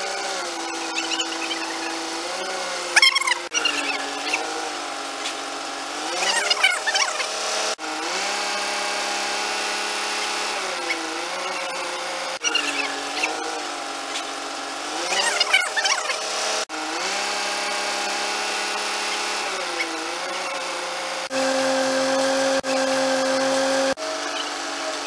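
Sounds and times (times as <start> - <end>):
high squeaks: 0.0 - 5.4, 6.1 - 7.8, 10.2 - 14.3, 15.0 - 16.4.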